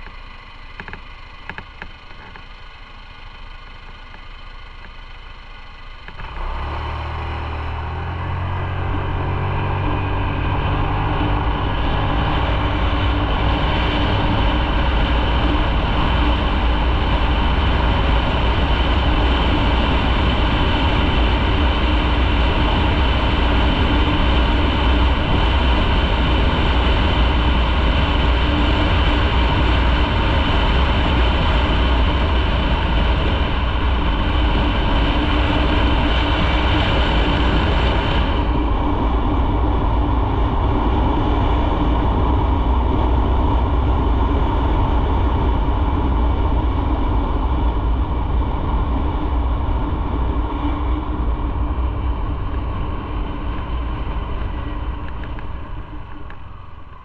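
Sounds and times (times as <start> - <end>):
motorcycle engine accelerating: 0.0 - 57.0
rushing noise: 6.1 - 27.4.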